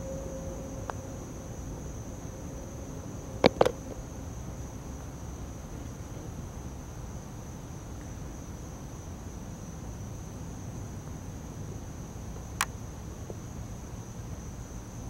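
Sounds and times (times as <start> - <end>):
high-pitched insect trill: 0.0 - 10.8
low outdoor hum: 0.0 - 15.0
putter striking golf ball: 3.4 - 3.8.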